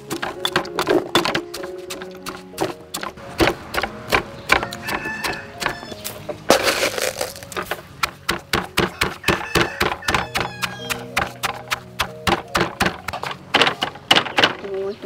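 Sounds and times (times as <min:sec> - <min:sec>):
pestle pounding in stone mortar: 0:00.0 - 0:14.6
background music: 0:00.0 - 0:15.0.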